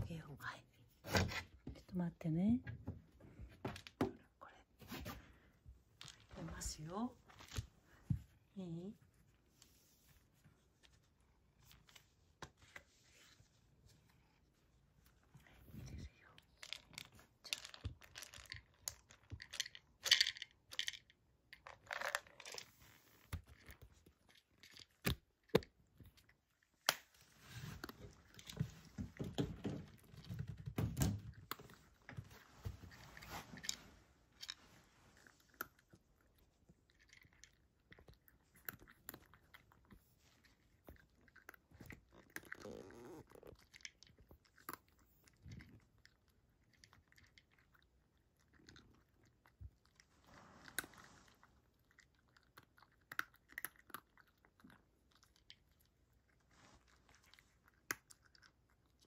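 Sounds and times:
cat crunching dry kibble: 15.4 - 30.6, 31.3 - 59.0.

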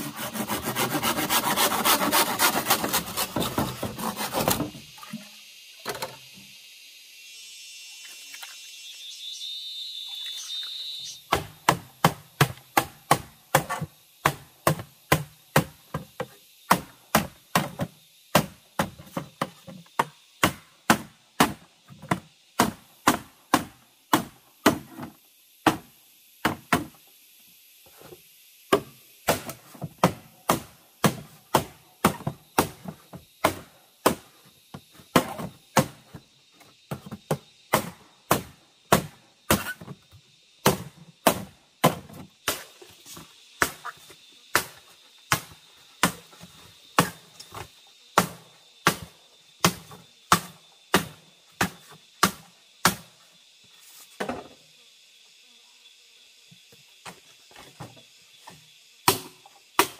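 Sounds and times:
axe chopping wood: 11.3 - 16.0, 16.7 - 26.9, 28.7 - 34.2, 35.1 - 36.0, 37.3 - 39.9, 40.6 - 42.6, 47.0 - 47.2, 49.6 - 53.1, 59.0 - 59.9.

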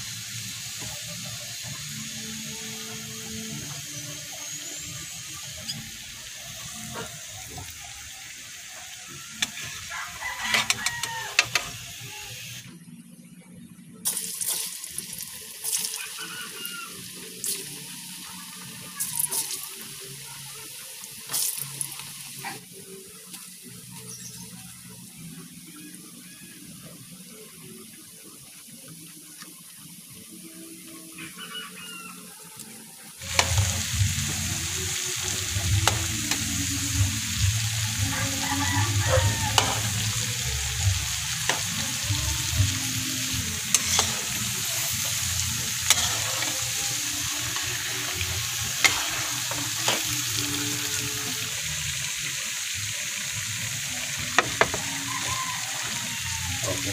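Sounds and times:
food sizzling in hot oil: 0.0 - 12.7, 14.0 - 56.9
metal spatula scraping a wok: 9.4 - 11.1, 39.5 - 40.1, 43.6 - 50.4.

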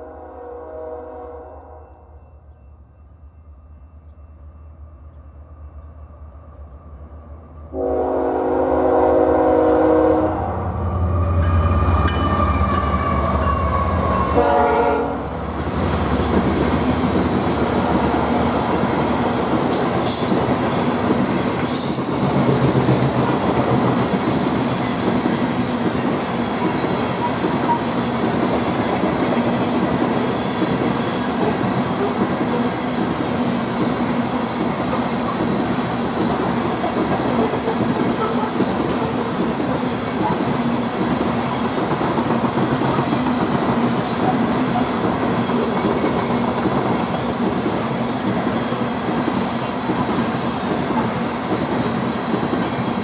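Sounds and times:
locomotive air horn blasts: 0.0 - 2.2, 7.7 - 15.4
train cars rumbling and clacking: 7.2 - 53.0.

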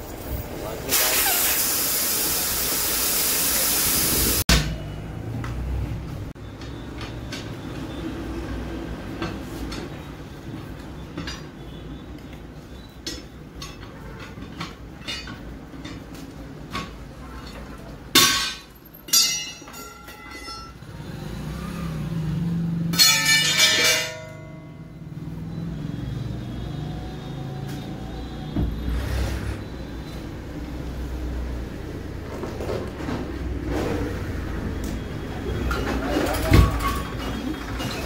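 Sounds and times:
tyre levers clanging on steel rim: 13.0 - 20.8, 22.9 - 24.8.

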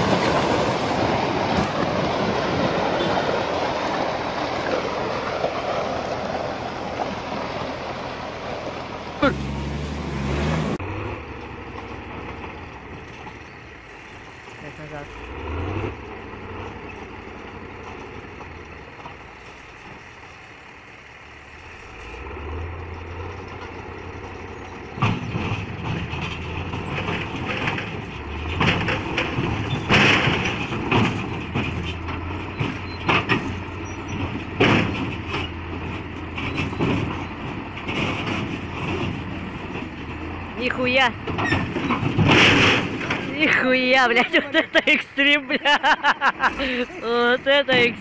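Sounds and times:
bulldozer diesel engine: 0.0 - 48.0
steel tracks clanking and squealing: 23.6 - 44.3.

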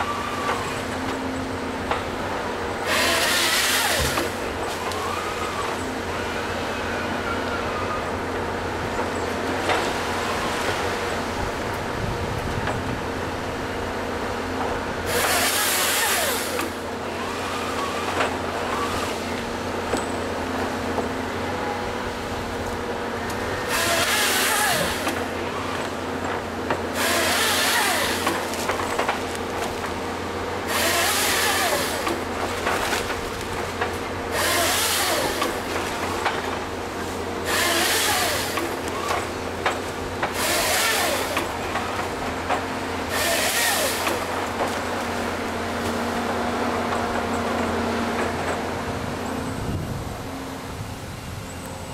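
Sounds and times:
excavator diesel engine running: 0.0 - 51.9
hydraulic whine: 0.0 - 51.9
chainsaw cutting log: 0.2 - 6.0, 14.9 - 20.1, 22.2 - 49.2.

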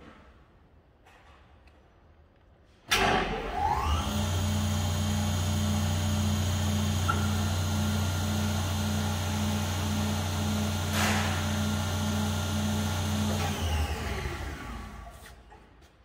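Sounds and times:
spindle moulder motor whining: 3.4 - 15.1.

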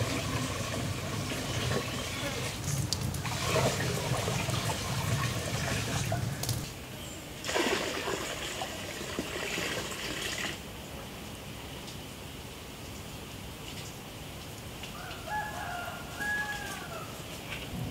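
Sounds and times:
water splashing into a basin: 0.0 - 6.7, 7.4 - 10.6.

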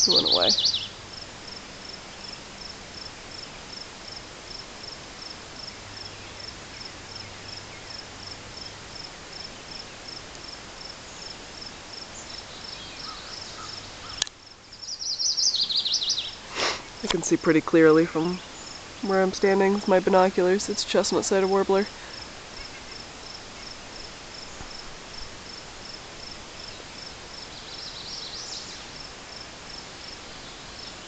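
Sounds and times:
bird singing: 0.0 - 1.0, 5.9 - 8.0, 12.1 - 21.8, 26.5 - 29.0
insect chirping: 0.0 - 31.0.

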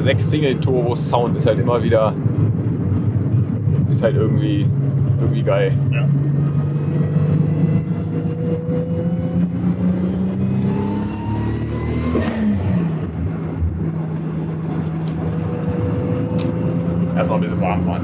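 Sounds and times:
car engine accelerating: 0.0 - 18.0.

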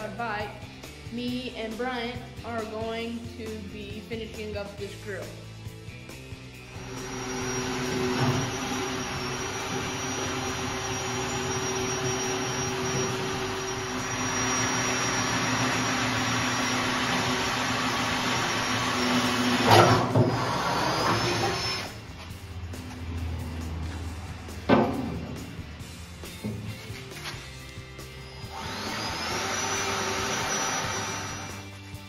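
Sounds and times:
electric motor whining: 6.7 - 22.0, 28.1 - 31.7
sharp knocks: 24.7 - 25.4.

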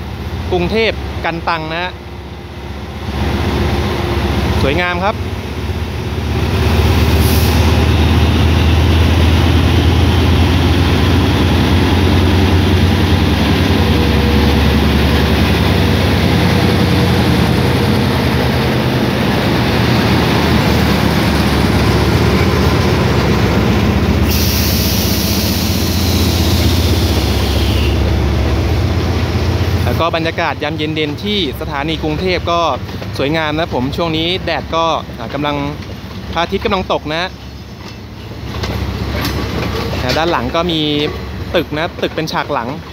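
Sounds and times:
locomotive engine humming: 1.9 - 42.9
train carriages rolling on rails: 3.1 - 42.9
sharp hiss: 24.2 - 27.9.

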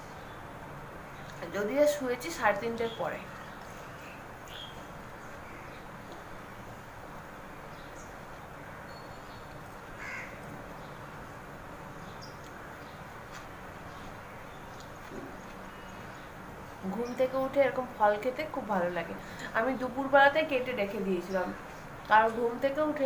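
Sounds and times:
faint crow caw: 10.0 - 10.6.

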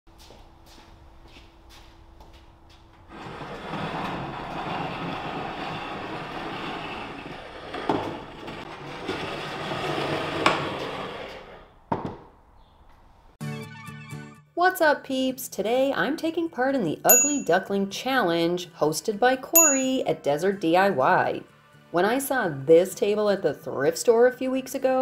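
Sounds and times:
table legs scraping concrete: 3.1 - 12.2
knocks: 11.9 - 12.3
table thumping down: 11.9 - 12.3.

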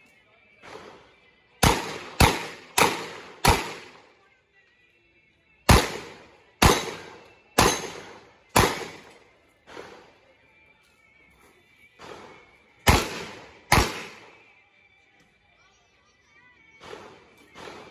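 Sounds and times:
revolver gunshots: 0.6 - 4.0, 5.7 - 10.2, 12.0 - 14.4, 16.8 - 17.9.

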